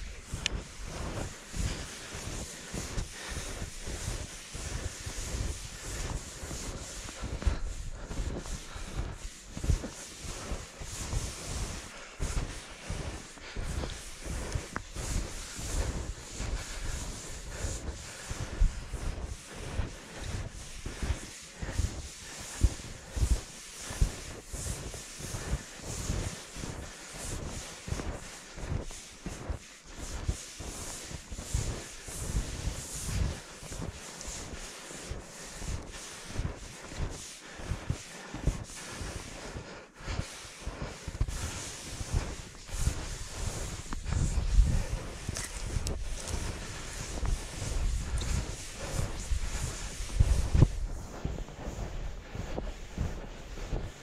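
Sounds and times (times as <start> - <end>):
rustling and rubbing noise: 0.0 - 54.0
wind buffeting microphone: 41.2 - 54.0.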